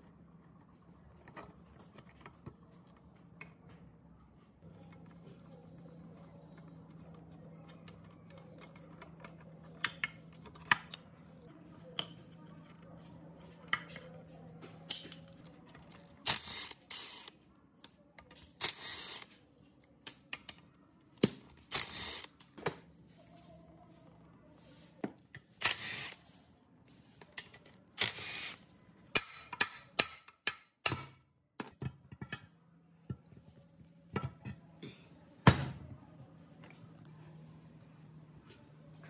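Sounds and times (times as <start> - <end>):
metal parts clinking and knocking: 14.8 - 16.0
impact driver bursts: 28.0 - 28.6.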